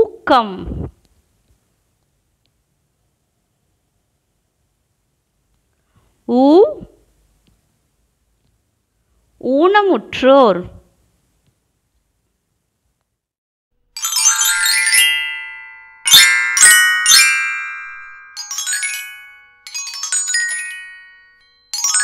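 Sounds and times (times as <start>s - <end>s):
bright chiming jingle: 14.0s - 22.0s
sharp bell strikes: 14.0s - 22.0s.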